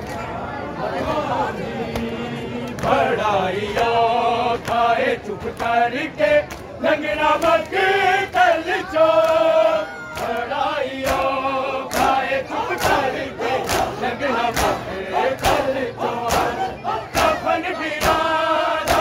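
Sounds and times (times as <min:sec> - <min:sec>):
men chanting in unison: 0:00.8 - 0:19.0
chest-beating slaps: 0:16.2 - 0:17.4.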